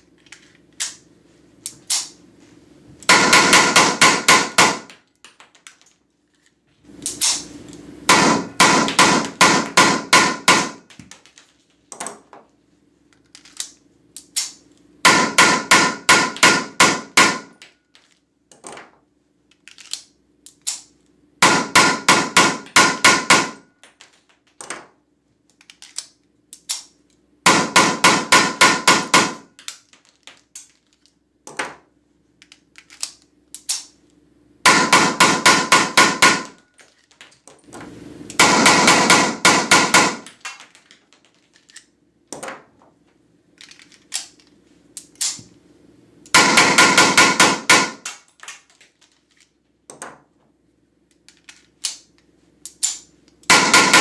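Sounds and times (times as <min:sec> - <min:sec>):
pistol handling clicks: 0:25.6 - 0:27.0, 0:45.0 - 0:45.4, 0:51.2 - 0:53.4.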